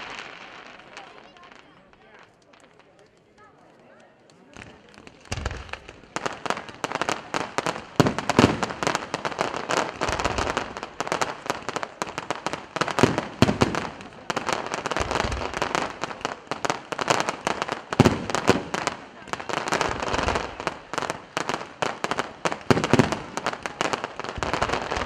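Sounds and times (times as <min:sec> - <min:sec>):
fireworks crackling: 0:00.0 - 0:25.0
firework shell booms: 0:07.4 - 0:25.0.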